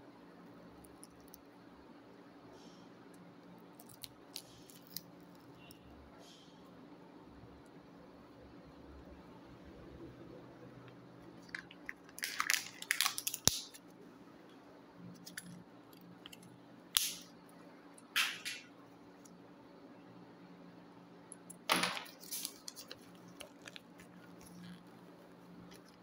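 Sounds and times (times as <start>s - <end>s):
crinkly plastic rustles: 11.4s - 13.9s, 21.6s - 24.8s
paper leaflet rustling: 21.7s - 24.6s.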